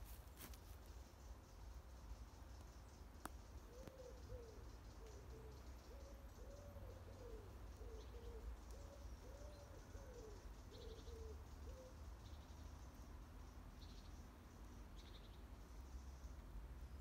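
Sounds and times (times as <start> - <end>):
pigeon cooing: 3.7 - 12.0.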